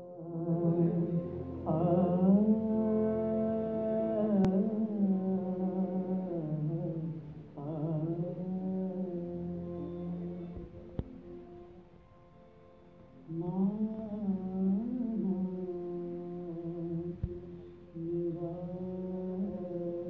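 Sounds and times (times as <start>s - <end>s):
low drone: 0.0s - 20.0s
wavering gliding melody: 0.0s - 20.0s
click: 4.4s - 4.6s, 10.6s - 11.2s.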